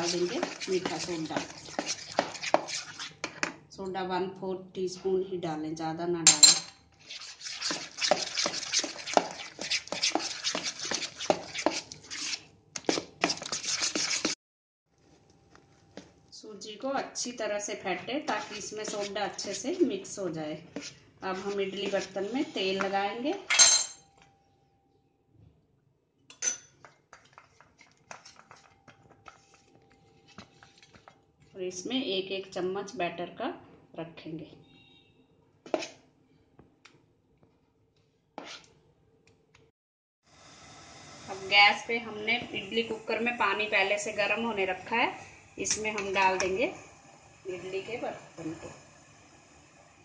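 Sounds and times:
spoon beating batter in bowl: 0.0s - 3.6s, 7.0s - 14.4s, 18.3s - 19.8s, 20.7s - 23.0s, 26.8s - 31.2s.

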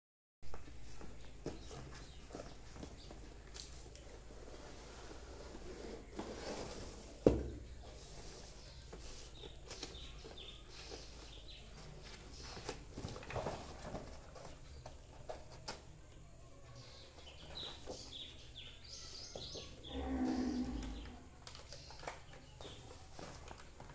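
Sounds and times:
cardboard box scraping and rustling: 4.4s - 7.2s.

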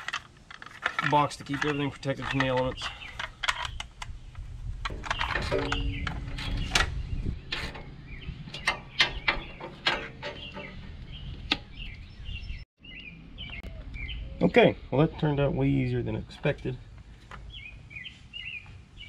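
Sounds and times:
sharp clicks and metal taps: 0.0s - 6.9s, 7.5s - 12.0s.

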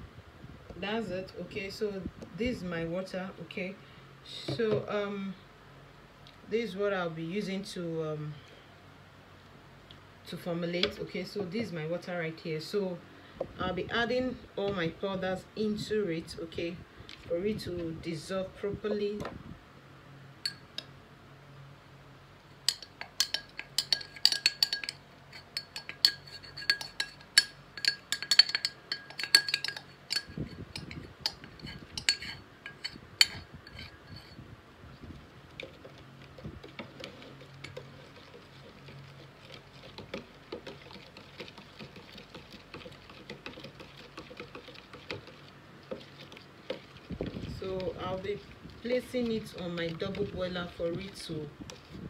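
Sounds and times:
spoon clinking against glass: 20.5s - 20.7s, 22.7s - 25.0s, 25.6s - 34.4s
spoon stirring in plastic jug: 22.6s - 34.4s, 35.0s - 52.0s.

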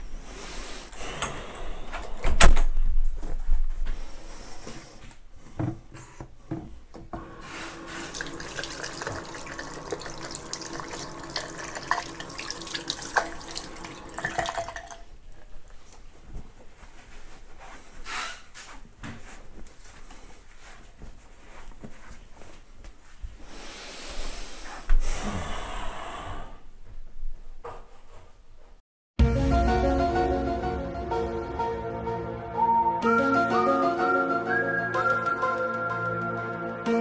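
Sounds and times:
hands washing under water: 7.4s - 15.0s
tap running into basin: 7.8s - 15.1s.

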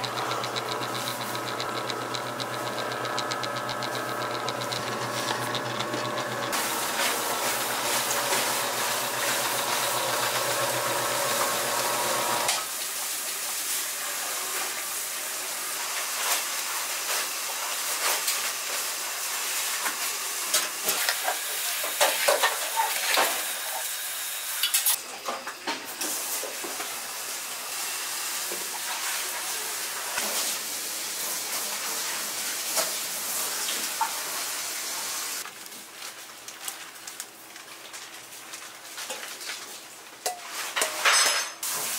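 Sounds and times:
noodle machine humming: 0.0s - 12.6s
broth boiling with hiss: 6.5s - 24.9s, 41.6s - 41.9s.

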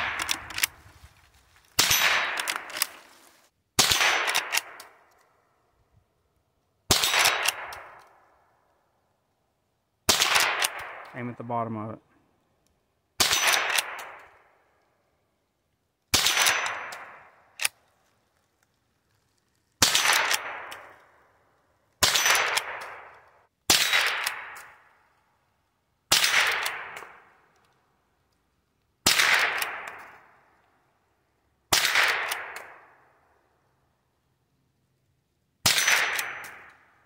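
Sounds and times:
rifle shots with echo: 0.0s - 0.8s, 1.8s - 3.0s, 3.8s - 5.0s, 6.9s - 8.0s, 10.1s - 11.4s, 13.2s - 14.4s, 16.1s - 17.7s, 19.8s - 21.0s, 22.0s - 24.9s, 26.1s - 27.4s, 29.0s - 30.4s, 31.7s - 33.1s, 35.6s - 36.9s.

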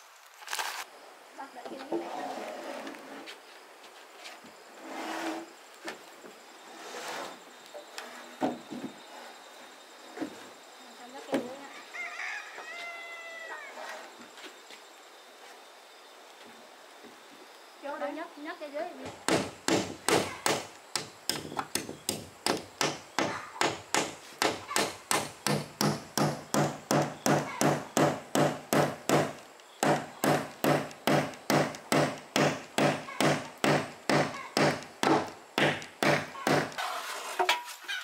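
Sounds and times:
chopping blows on wood: 19.3s - 36.8s.

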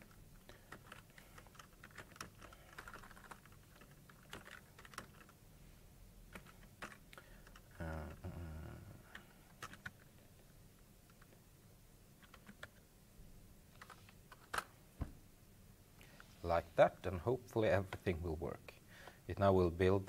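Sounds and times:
keyboard typing: 0.0s - 5.4s, 6.3s - 8.3s, 9.0s - 10.2s, 12.2s - 12.8s, 13.7s - 14.7s
low vocal murmur: 7.7s - 9.2s.

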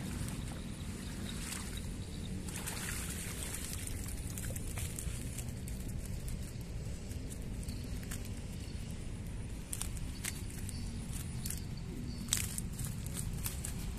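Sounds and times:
fish flapping in keepnet: 2.5s - 6.5s.

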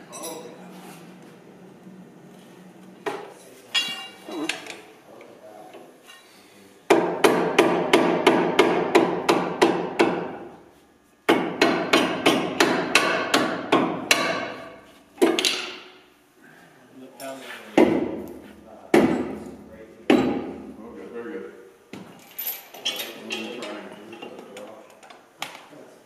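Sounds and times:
hammer striking metal: 11.3s - 15.9s.

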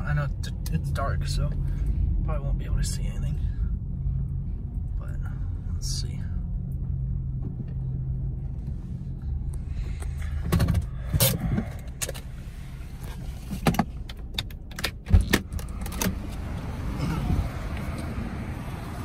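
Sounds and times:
car engine idling: 0.0s - 19.0s
car door clicks and knocks: 13.6s - 16.2s.

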